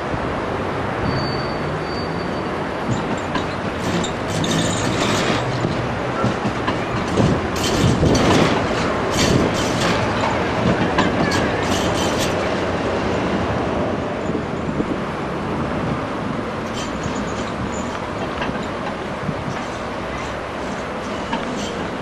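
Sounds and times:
tram passing on curved track: 0.0s - 22.0s
wheels clanking over rail crossings: 1.0s - 13.6s, 15.8s - 22.0s.

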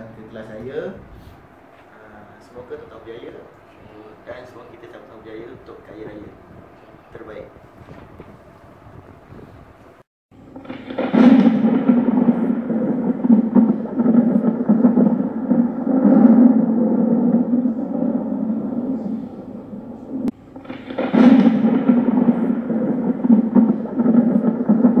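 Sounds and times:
noisy wash: 0.0s - 25.0s
steady low drone: 0.0s - 25.0s
sudden hit sound effect: 10.5s - 25.0s.

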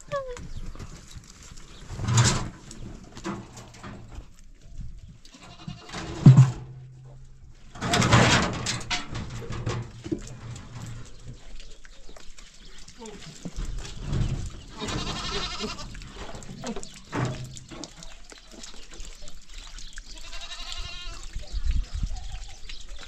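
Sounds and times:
goats and sheep bleating: 5.3s - 6.4s, 14.6s - 17.3s, 20.1s - 21.4s.

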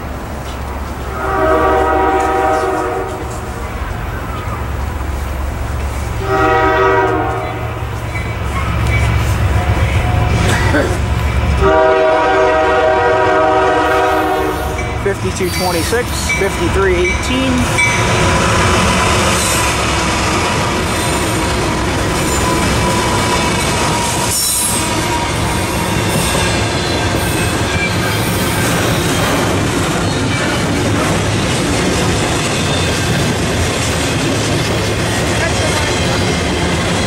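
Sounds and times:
diesel locomotives passing: 0.0s - 37.0s
train clatter: 0.0s - 37.0s
train wheels rumbling on rail: 0.0s - 37.0s
wheel squeal: 22.2s - 29.4s.

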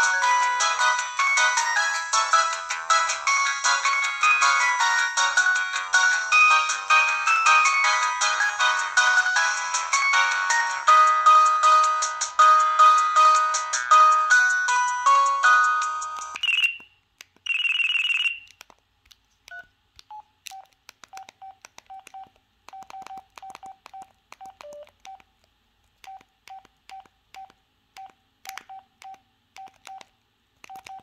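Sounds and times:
phone ringtone melody: 0.0s - 16.8s, 17.5s - 18.4s
keypad beeps with button clicks: 16.4s - 18.6s, 19.5s - 25.3s, 26.0s - 31.0s.

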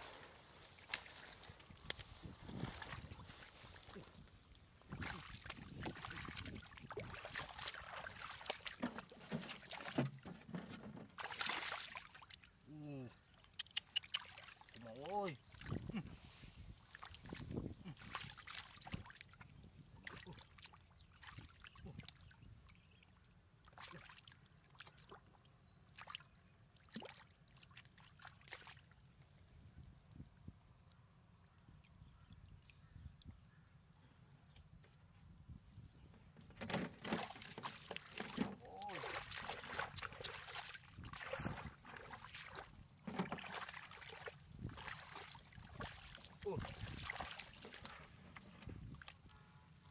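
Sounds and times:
hands splashing in muddy water: 0.0s - 10.2s, 11.1s - 12.5s, 13.4s - 22.1s, 23.7s - 25.3s, 36.8s - 49.3s
feet shifting in water: 0.0s - 12.6s, 15.4s - 21.8s, 36.6s - 49.4s.

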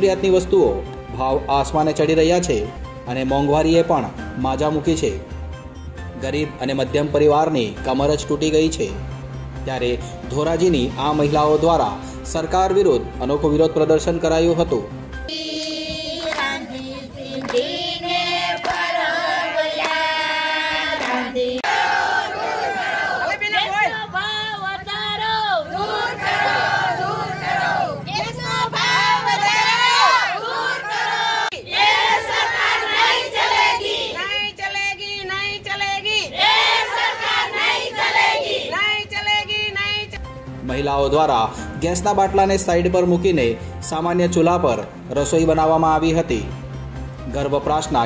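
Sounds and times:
women singing in unison: 15.3s - 23.3s, 25.0s - 34.5s
women chanting slogans: 15.3s - 40.2s.

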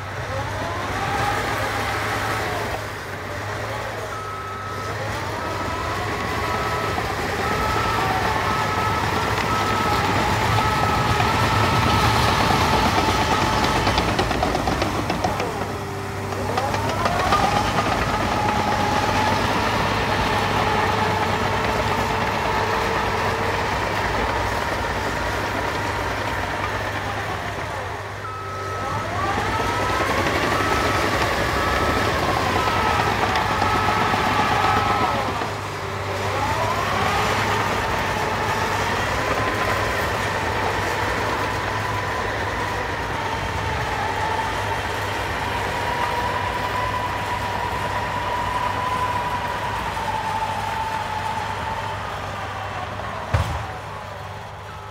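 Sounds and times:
diesel engine running hard: 0.0s - 54.9s
backup alarm beeping: 28.2s - 34.4s.

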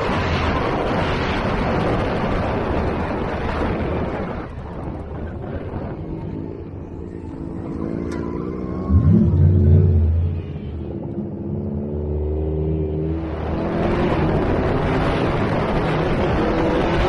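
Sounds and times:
truck engine revving: 5.8s - 17.0s.

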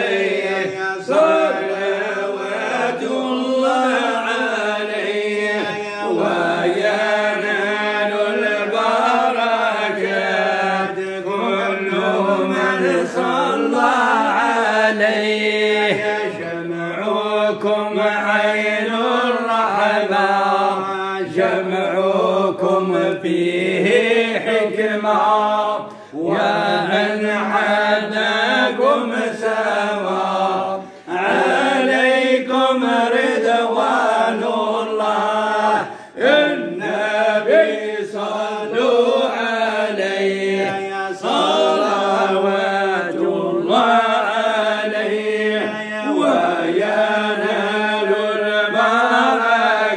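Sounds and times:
men chanting devotional praise: 0.0s - 49.9s.

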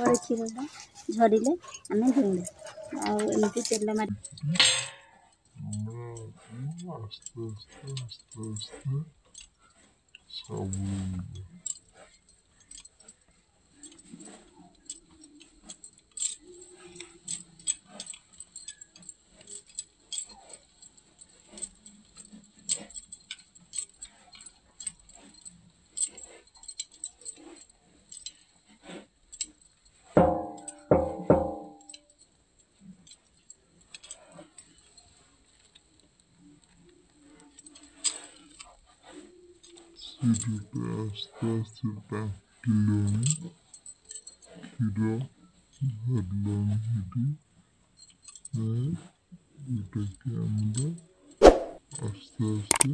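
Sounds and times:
bangles clinking: 0.0s - 5.6s, 11.4s - 35.8s, 47.9s - 48.6s, 51.4s - 52.9s.

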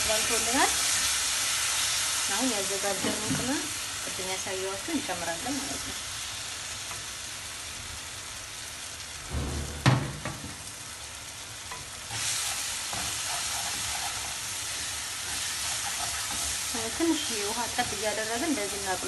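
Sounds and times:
food sizzling in a frying pan: 0.0s - 19.0s
sharp knock: 9.3s - 10.6s
wooden spatula stirring: 11.8s - 18.8s.

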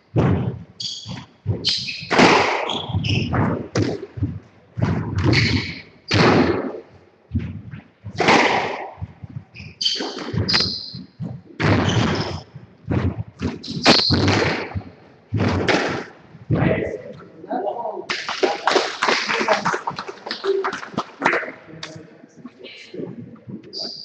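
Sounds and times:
squash ball hits: 0.2s - 6.8s, 8.1s - 16.8s
shoes squeaking on wooden floor: 0.4s - 6.4s, 9.0s - 15.0s.

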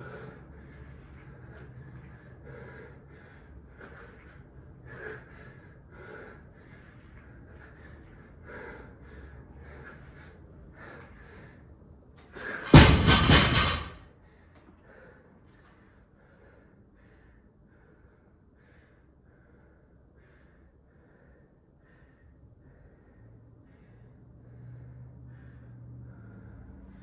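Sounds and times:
hard rhythmic breathing: 0.0s - 27.0s
barbell plates clanging on floor: 12.4s - 14.0s.

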